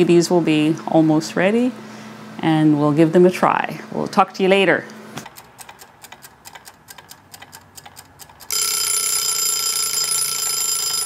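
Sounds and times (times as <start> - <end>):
wind-up timer ticking: 5.3 - 11.0
timer bell ringing: 8.5 - 11.0.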